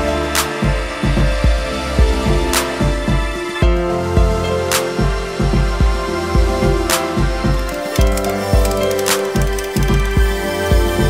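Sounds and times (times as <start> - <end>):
music with steady beat and bass: 0.0 - 11.0.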